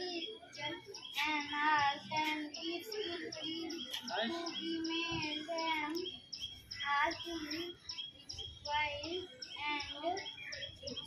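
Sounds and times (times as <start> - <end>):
boy chanting into microphone: 0.0 - 6.1
birds chirping: 0.0 - 11.0.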